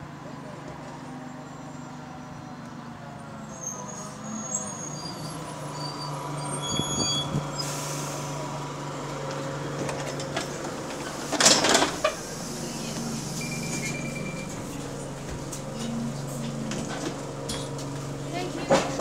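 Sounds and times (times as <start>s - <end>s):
bus diesel engine idling: 0.0s - 19.0s
brake squeals: 3.4s - 8.6s, 11.0s - 17.9s.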